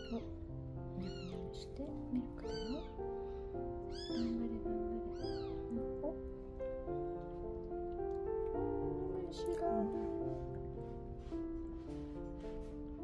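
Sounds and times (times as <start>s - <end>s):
background music: 0.0s - 13.0s
kitten mewing: 1.0s - 1.3s, 2.5s - 3.0s, 3.9s - 6.2s.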